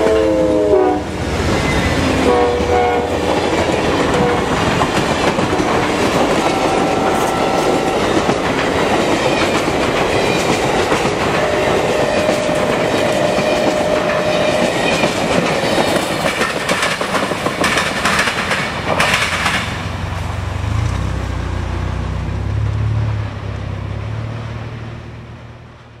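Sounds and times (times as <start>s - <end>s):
train wheels rushing on rails: 0.0s - 24.8s
clickety-clack over rail joints: 1.3s - 21.5s.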